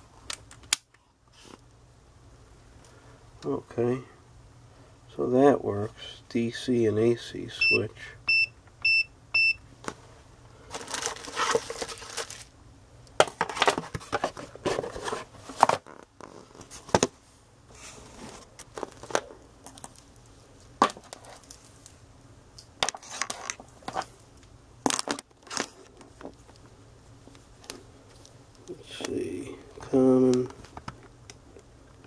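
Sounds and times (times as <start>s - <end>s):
plastic rustling and crinkling: 10.6s - 12.5s, 13.2s - 22.0s, 22.8s - 26.7s.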